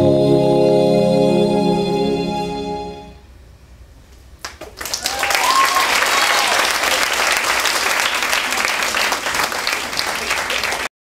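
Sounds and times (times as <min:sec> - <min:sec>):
audience applauding: 0:04.4 - 0:10.9.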